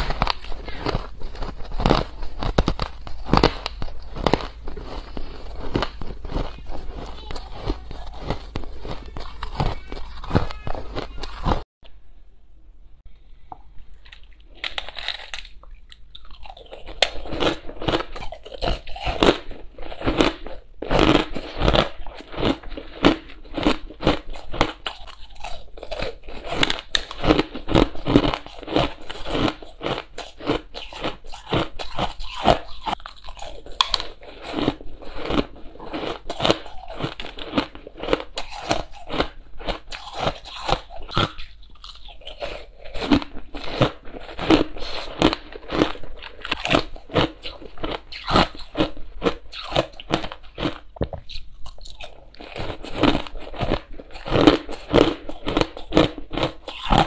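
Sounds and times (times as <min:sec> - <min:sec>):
crushed ice crunching: 0:00.0 - 0:11.6.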